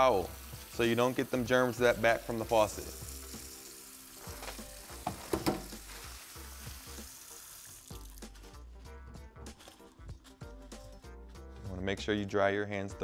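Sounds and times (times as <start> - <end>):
tap water running into sink: 0.0 - 8.6.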